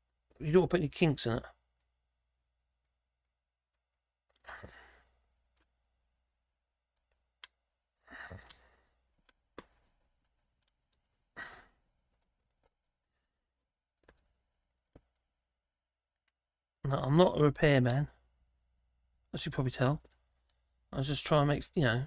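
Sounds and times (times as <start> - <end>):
breathy exhalations: 4.4 - 5.3, 8.0 - 9.0, 11.3 - 11.9.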